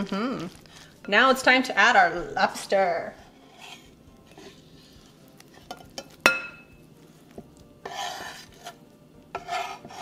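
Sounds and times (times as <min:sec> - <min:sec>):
scraping on cutting board: 0:03.1 - 0:05.0, 0:07.8 - 0:10.0
utensil clinking on glass bowl: 0:05.7 - 0:06.7.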